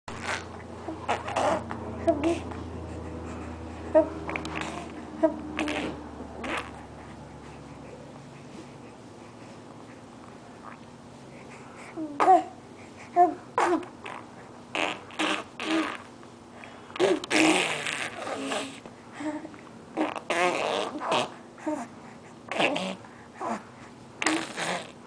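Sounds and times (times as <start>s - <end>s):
baby blowing raspberries: 0.1s - 2.5s, 3.3s - 7.0s, 13.6s - 16.1s, 17.0s - 18.8s, 20.0s - 21.8s, 22.5s - 23.6s, 24.2s - 25.0s
baby cooing: 0.2s - 2.5s, 3.9s - 6.9s.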